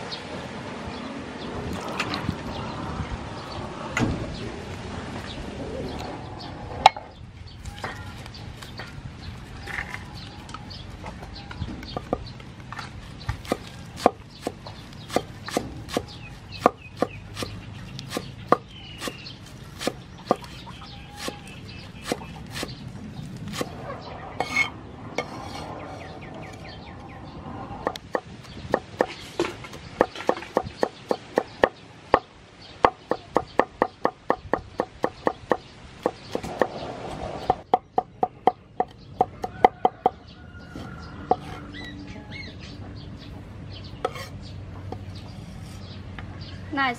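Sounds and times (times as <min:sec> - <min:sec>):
cleaver chopping on wooden board: 0:13.3 - 0:22.8, 0:23.5 - 0:23.8, 0:27.8 - 0:36.8.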